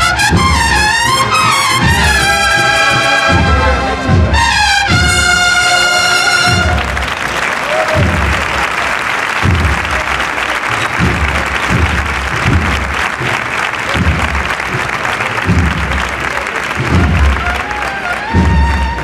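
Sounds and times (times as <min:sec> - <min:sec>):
low drum beat: 0:00.0 - 0:19.0
crowd applauding: 0:01.2 - 0:19.0.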